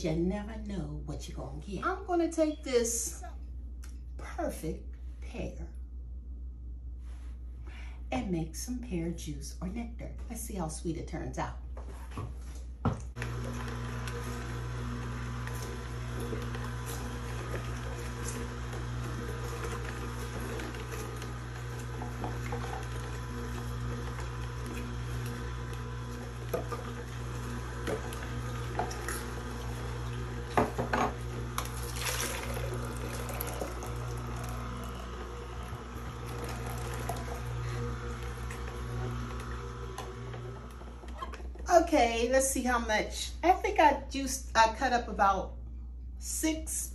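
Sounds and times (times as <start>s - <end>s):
juicer motor humming: 12.9s - 41.7s
sharp knocks in juicer chute: 26.2s - 27.1s, 30.5s - 31.8s.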